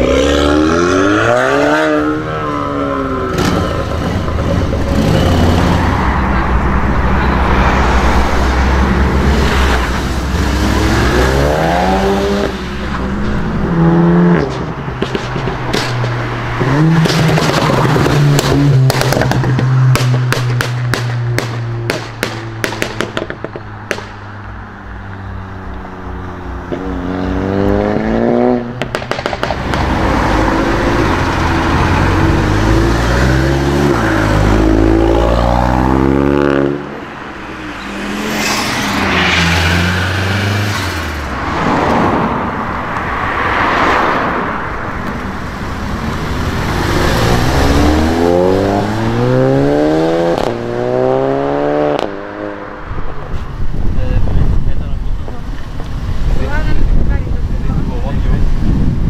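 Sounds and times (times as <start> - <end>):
cars passing close by: 0.0 - 59.0
exhaust crackles and pops: 14.4 - 24.2, 28.6 - 30.2
car engine accelerating hard: 43.7 - 52.8.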